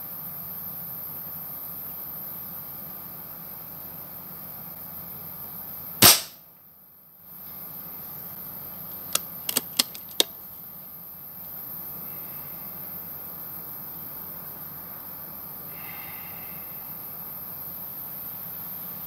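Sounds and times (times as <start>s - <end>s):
air rifle shot: 6.0s - 6.4s.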